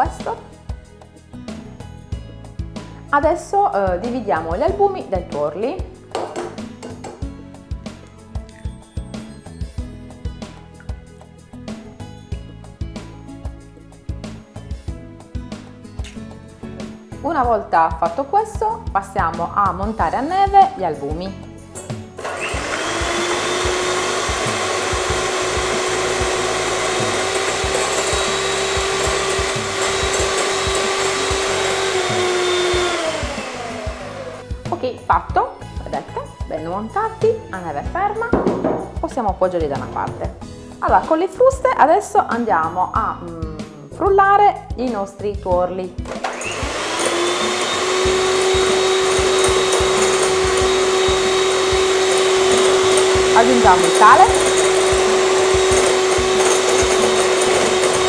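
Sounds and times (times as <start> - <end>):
electric hand mixer whining: 22.0 - 34.6, 46.0 - 58.0.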